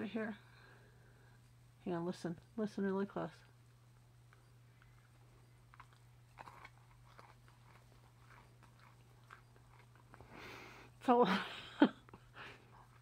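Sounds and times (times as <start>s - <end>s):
chewing candy crunches: 4.3s - 10.4s.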